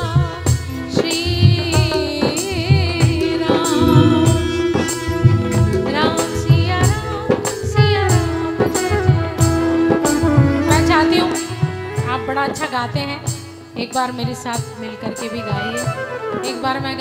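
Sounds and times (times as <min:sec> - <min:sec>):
woman singing into a microphone: 0:00.0 - 0:17.0
steady percussion beat: 0:01.7 - 0:10.6
held drone note: 0:03.6 - 0:06.8.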